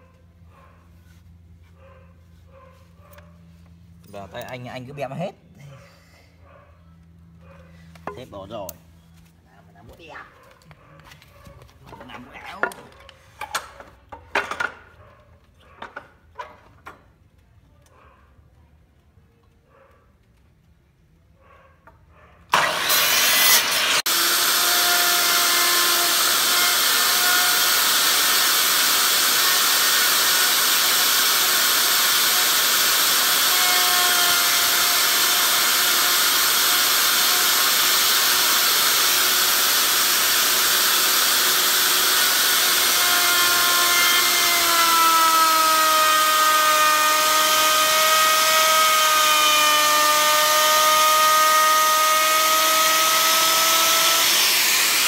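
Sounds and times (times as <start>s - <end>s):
electric router whining: 22.5s - 55.0s.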